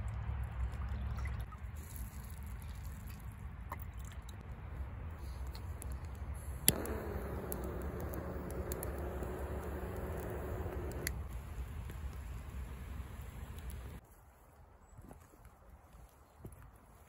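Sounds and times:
lighter flame hissing: 6.4s - 14.0s
lighter clicking: 6.5s - 11.2s.

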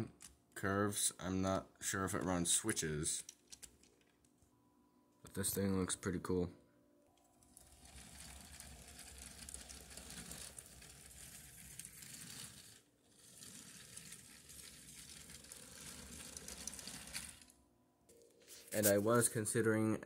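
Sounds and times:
toy train wheels rattling on track: 7.6s - 17.5s.

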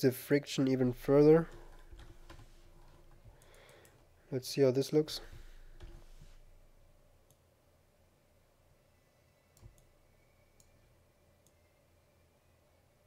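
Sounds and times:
computer mouse clicks: 1.0s - 4.0s, 5.3s - 6.6s, 9.6s - 9.9s.

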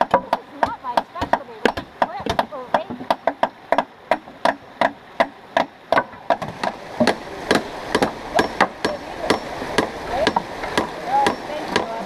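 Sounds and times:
hammers driving nails into wood: 0.0s - 9.0s.

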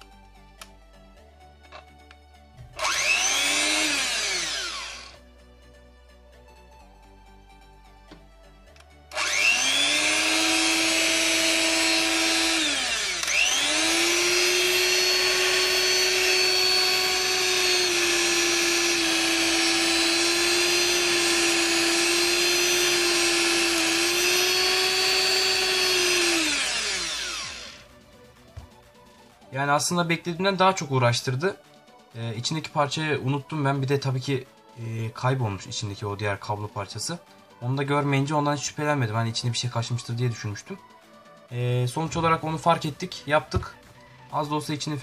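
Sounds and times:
hand mixer motor whining: 2.8s - 5.2s, 9.1s - 27.9s.

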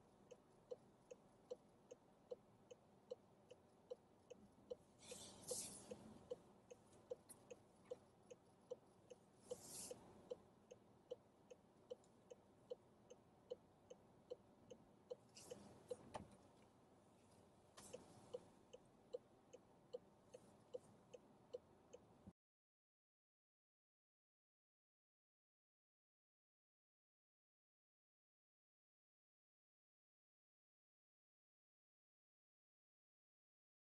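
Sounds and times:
car indicator ticking: 0.2s - 16.4s.

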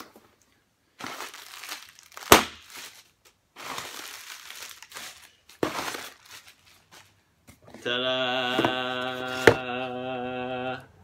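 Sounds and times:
cardboard and plastic rustling: 0.0s - 7.8s.

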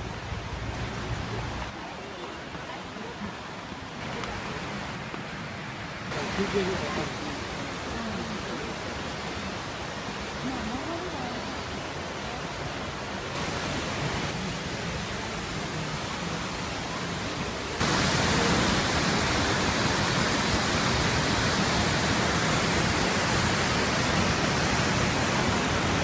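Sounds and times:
waterfall rushing: 0.0s - 26.0s.

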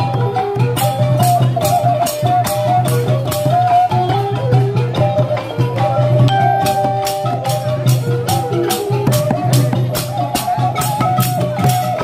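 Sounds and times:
stepping melody: 6.3s - 8.5s.

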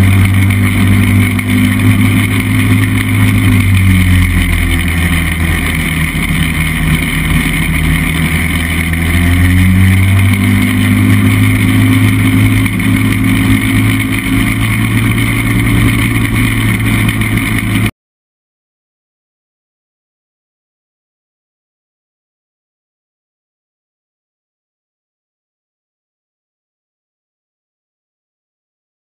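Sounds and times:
aircraft engine and propeller running: 0.0s - 17.9s.

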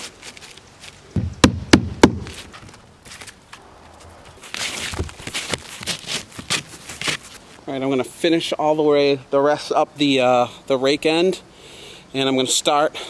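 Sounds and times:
shingle rustling and scraping: 0.0s - 8.6s
hammer striking nail: 1.2s - 2.4s.

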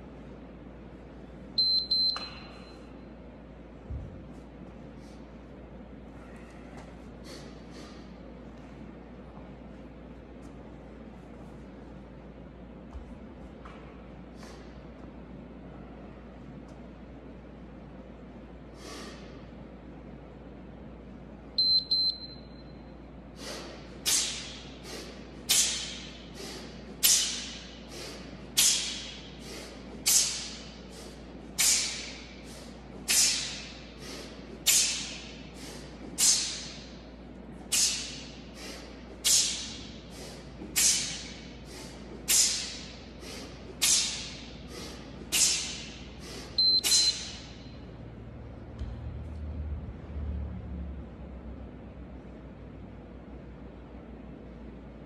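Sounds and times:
interval timer beeps: 1.6s - 2.9s, 21.6s - 22.8s, 46.6s - 47.8s
sharp hissing breaths: 18.7s - 19.4s, 23.3s - 37.0s, 37.6s - 47.5s.

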